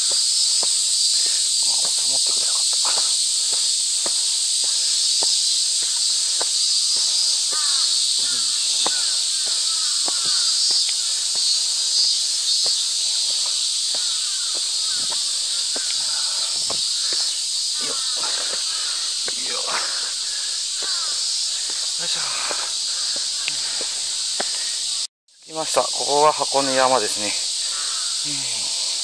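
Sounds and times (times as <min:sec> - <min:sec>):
footsteps climbing steps: 0:00.0 - 0:12.0, 0:12.6 - 0:17.3
cicadas chorus: 0:00.0 - 0:29.0.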